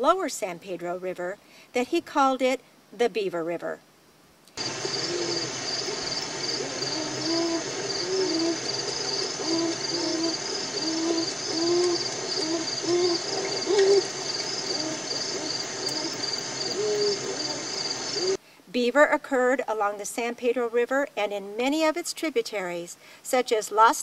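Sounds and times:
beavers whining calls: 0:04.6 - 0:18.4.

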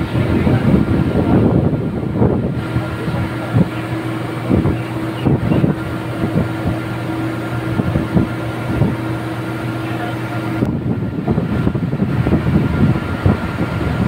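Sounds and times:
drilling machinery humming: 0:00.0 - 0:14.0.

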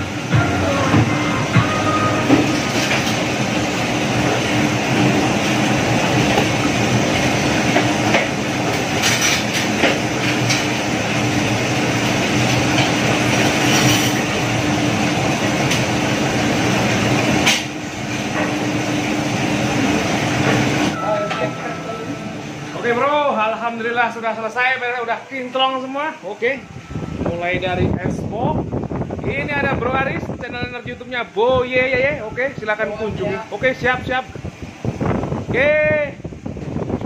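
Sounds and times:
loud mechanical roar: 0:00.0 - 0:24.0
low hum: 0:20.8 - 0:24.0.

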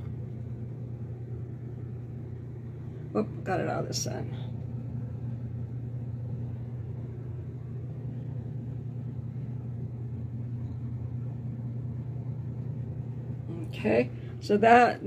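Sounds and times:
low background hum: 0:00.0 - 0:15.0.

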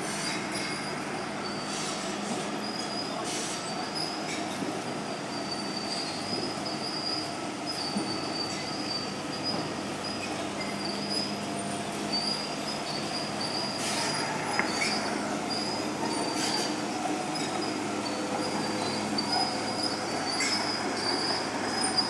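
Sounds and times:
metallic squeal from steel tracks: 0:00.0 - 0:22.0
diesel engine running: 0:09.4 - 0:22.0.

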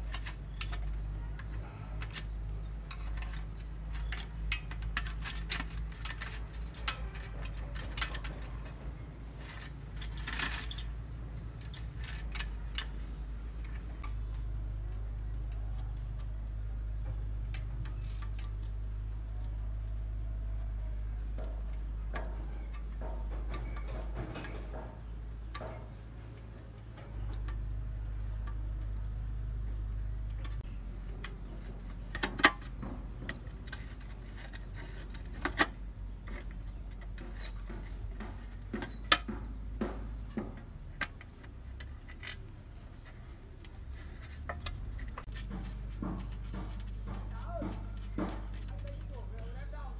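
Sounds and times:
hand tools clicking on metal: 0:00.0 - 0:11.0, 0:11.6 - 0:14.5, 0:30.3 - 0:49.1.

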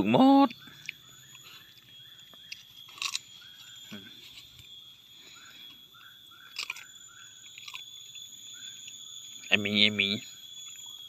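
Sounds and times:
high insect drone: 0:00.0 - 0:11.0
puppy crunching snack: 0:00.5 - 0:03.4, 0:06.5 - 0:08.0.

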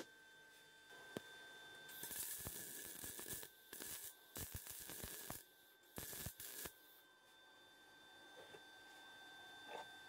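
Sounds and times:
welding arc crackling and hissing: 0:01.9 - 0:07.0.

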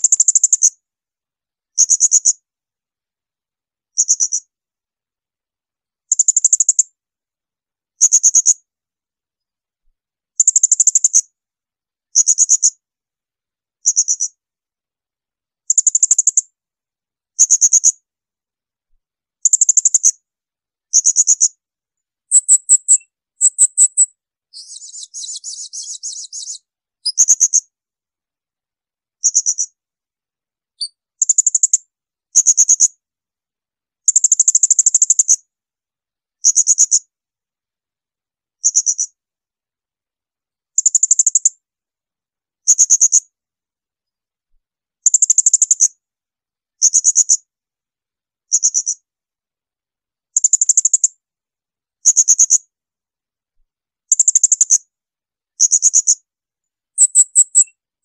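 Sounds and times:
parrot shrill high-pitched calls: 0:22.3 - 0:26.6.

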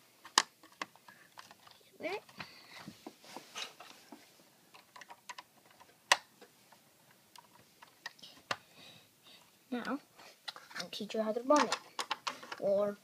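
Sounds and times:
plastic pieces clicking: 0:00.2 - 0:02.4, 0:04.7 - 0:06.3, 0:11.5 - 0:12.7.

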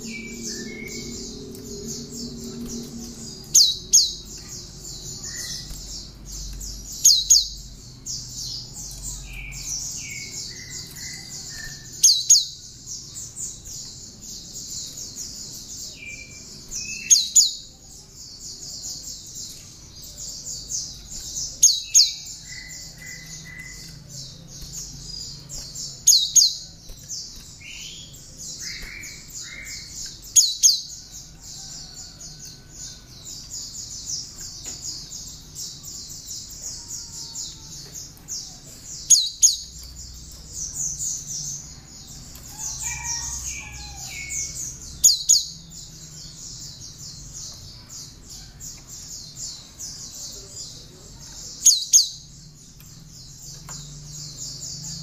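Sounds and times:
bird singing rapid high trill: 0:00.0 - 0:31.0.

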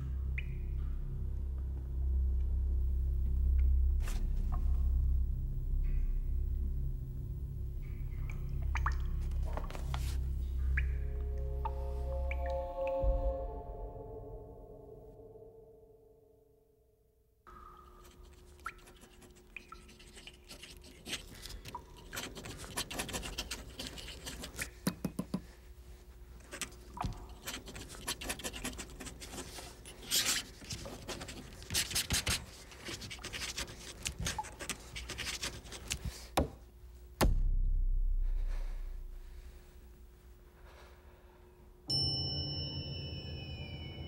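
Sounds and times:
loud low rumble: 0:00.0 - 0:15.8, 0:37.3 - 0:40.1.

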